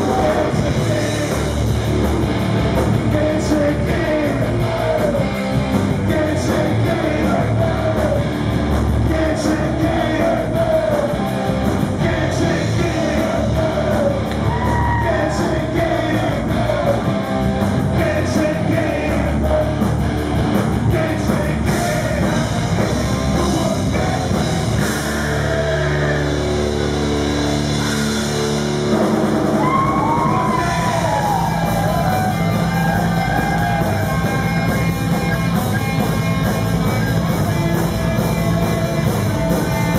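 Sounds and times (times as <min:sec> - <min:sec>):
man singing: 0:00.0 - 0:01.7, 0:03.0 - 0:08.4, 0:09.0 - 0:11.4, 0:12.0 - 0:17.3, 0:17.9 - 0:20.0, 0:20.8 - 0:26.6
live rock band playing: 0:00.0 - 0:39.9.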